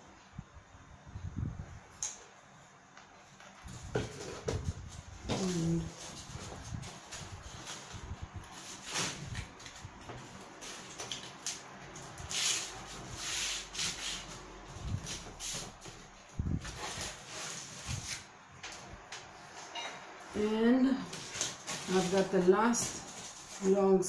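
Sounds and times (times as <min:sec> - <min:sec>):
cardboard rustling and scraping: 0:03.6 - 0:11.4, 0:12.1 - 0:18.3, 0:21.1 - 0:24.0.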